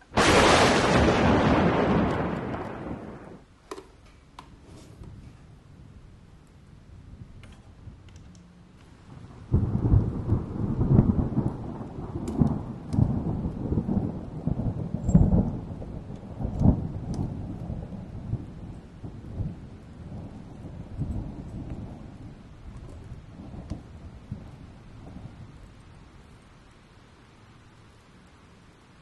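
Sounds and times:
thunder rumbling: 0.0 - 3.5, 8.9 - 27.1.

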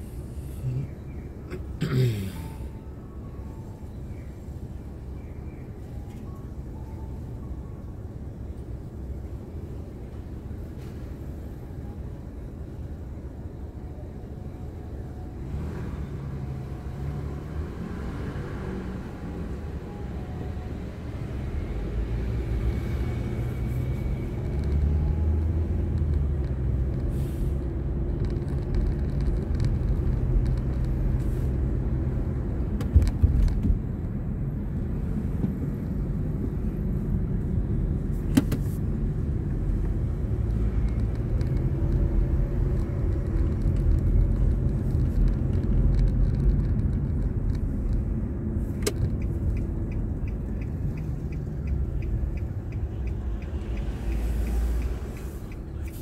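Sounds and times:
car engine and tyre rumble: 0.0 - 56.0
light even ticking: 48.8 - 56.0.

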